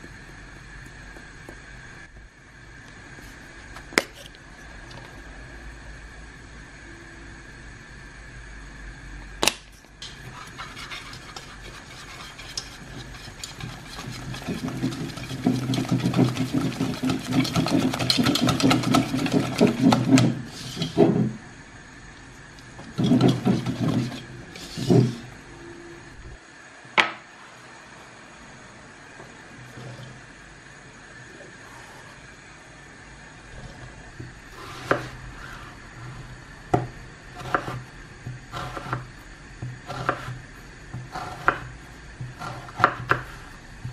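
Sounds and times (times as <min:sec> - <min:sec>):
whisk rattling in bowl: 0:10.3 - 0:20.9, 0:23.0 - 0:24.3.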